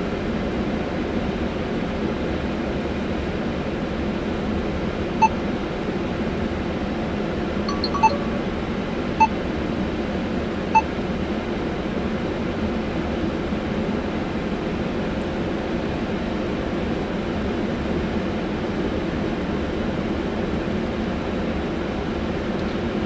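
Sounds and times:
short touchscreen beeps: 0:07.7 - 0:08.6.

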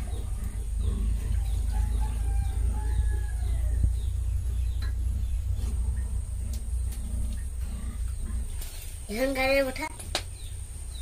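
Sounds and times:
steady low hum: 0:00.0 - 0:11.0
rooster crowing: 0:01.4 - 0:04.1.

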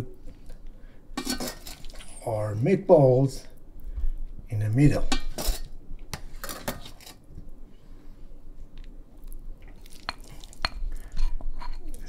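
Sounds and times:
squishy handling of meatballs: 0:07.6 - 0:11.1.

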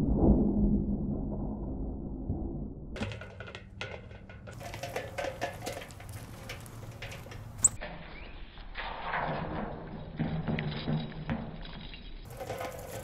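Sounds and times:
rustling: 0:04.0 - 0:07.8, 0:12.2 - 0:13.0.

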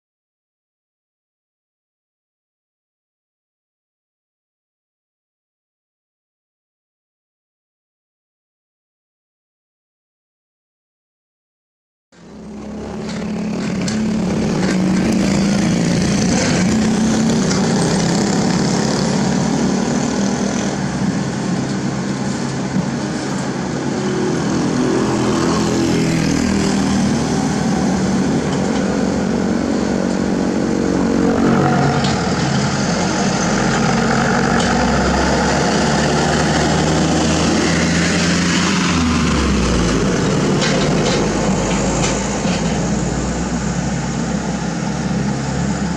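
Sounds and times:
dump truck engine: 0:12.2 - 0:45.9
excavator diesel engine: 0:12.2 - 0:45.9.

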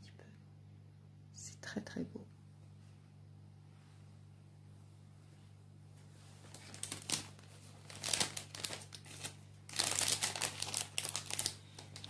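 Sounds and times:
cellophane crinkling: 0:06.4 - 0:12.0.

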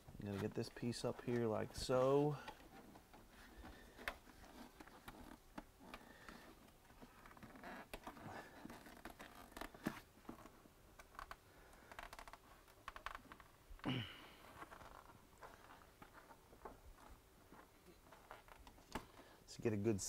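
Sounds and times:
plastic scraping and rubbing: 0:00.1 - 0:13.6.

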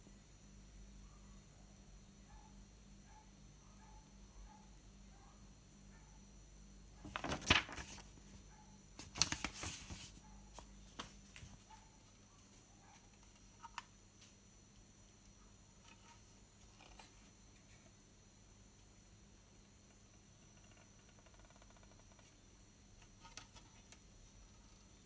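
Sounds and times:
paper rustling: 0:07.0 - 0:08.3, 0:09.0 - 0:11.7.

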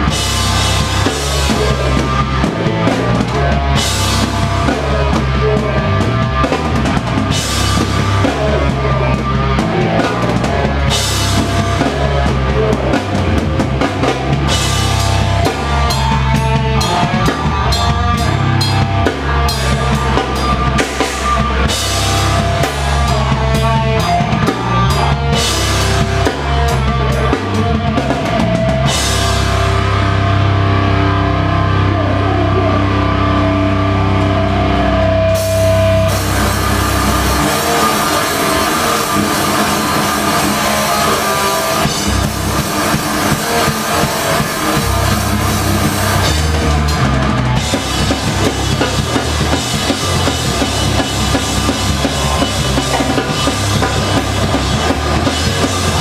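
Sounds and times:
live rock band playing: 0:00.0 - 0:56.0
pounding drums: 0:35.4 - 0:56.0.

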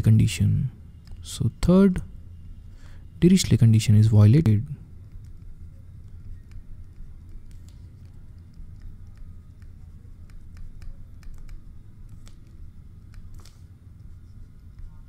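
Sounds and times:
low hum: 0:00.0 - 0:15.0
stylus tapping on tablet: 0:05.0 - 0:15.0.

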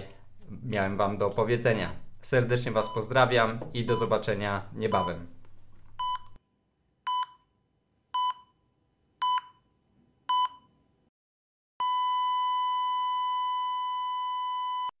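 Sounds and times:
heart monitor beeps: 0:06.0 - 0:06.4, 0:07.1 - 0:07.5, 0:08.2 - 0:08.6, 0:09.2 - 0:09.7, 0:10.3 - 0:10.8, 0:11.8 - 0:14.9.

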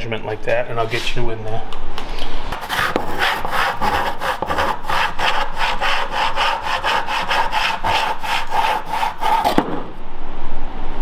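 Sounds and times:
hand saw cutting wood: 0:02.6 - 0:09.7.

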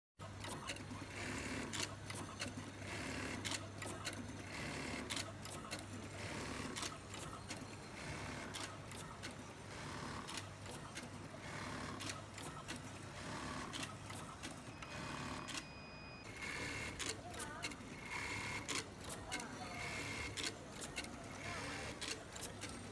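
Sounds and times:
sharp machine clicks: 0:00.4 - 0:15.7, 0:16.3 - 0:22.9
high-speed machine stitching: 0:04.4 - 0:05.2, 0:11.4 - 0:12.2, 0:14.8 - 0:15.6, 0:16.3 - 0:19.2.

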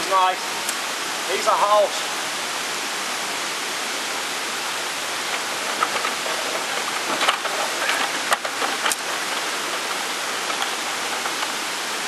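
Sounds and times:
steady rushing noise: 0:00.0 - 0:12.0
sharp knocks and clatters: 0:05.2 - 0:12.0.

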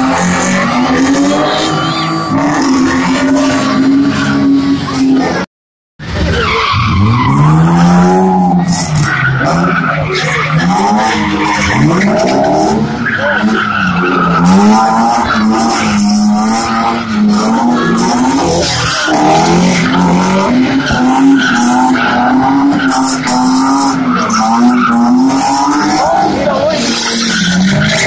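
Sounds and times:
car engines revving: 0:00.0 - 0:28.0
tyres screeching: 0:06.0 - 0:28.0.

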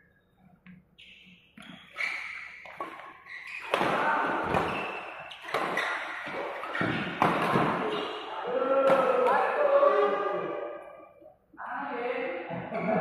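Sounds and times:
racket hitting shuttlecock: 0:01.6 - 0:08.2, 0:08.8 - 0:09.5.

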